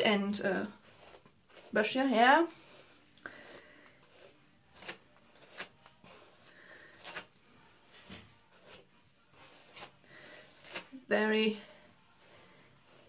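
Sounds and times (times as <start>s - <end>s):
hair brushing swishes: 0.8s - 11.4s, 12.1s - 13.0s.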